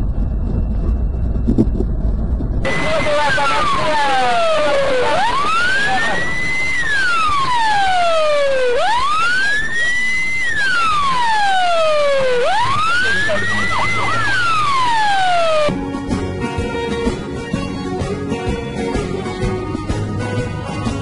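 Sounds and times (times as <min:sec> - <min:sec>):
police siren wailing: 0:02.7 - 0:15.7.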